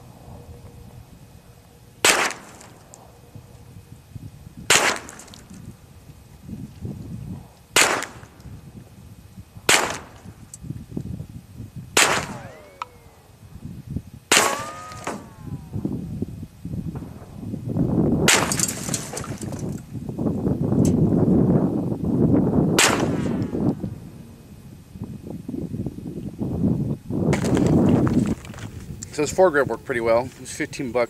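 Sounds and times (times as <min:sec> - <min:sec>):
whine sinking in pitch: 0:00.0 - 0:04.7, 0:14.6 - 0:16.4
rifle shots: 0:02.0 - 0:02.9, 0:04.7 - 0:05.4, 0:07.8 - 0:08.4, 0:09.7 - 0:10.3, 0:12.0 - 0:13.2, 0:14.3 - 0:15.4, 0:18.3 - 0:19.2, 0:22.8 - 0:23.5.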